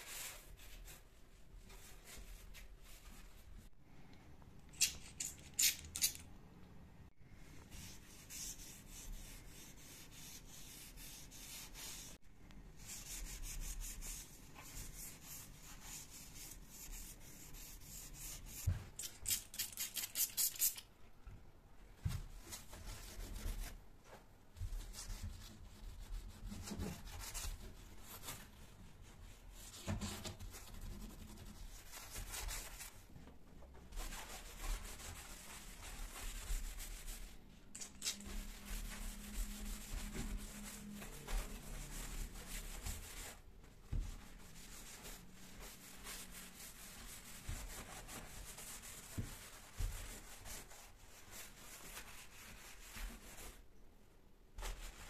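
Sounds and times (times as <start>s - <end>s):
cloth rubbing on painted door: 38.2s - 53.6s.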